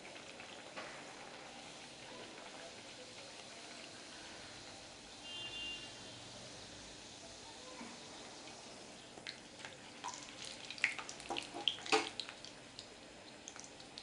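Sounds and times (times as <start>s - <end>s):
oil crackling and popping: 0.0s - 4.0s, 9.1s - 14.0s
pastry deep-frying in oil: 0.0s - 14.0s.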